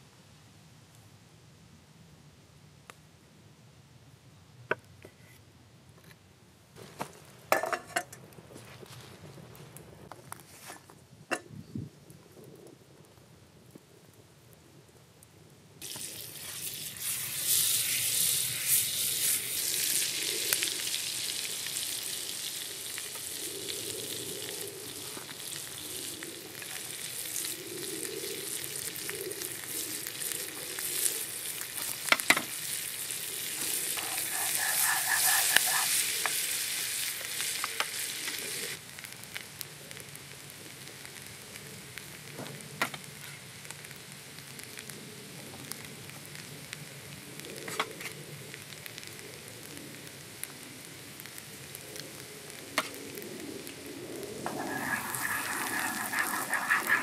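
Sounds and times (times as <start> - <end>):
butter sizzling in frying pan: 15.8 - 42.3, 54.4 - 57.0.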